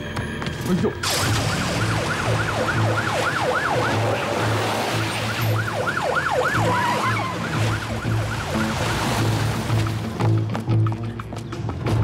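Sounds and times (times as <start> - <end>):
police siren yelping: 1.0 - 9.3.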